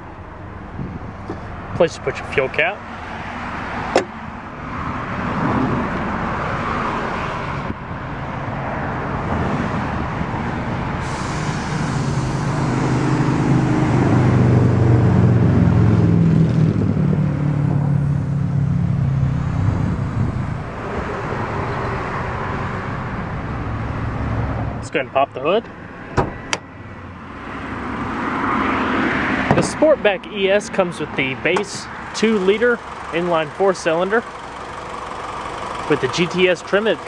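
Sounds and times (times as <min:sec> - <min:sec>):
passing road traffic: 0:00.0 - 0:37.0
heavy vehicle passing: 0:08.4 - 0:36.9.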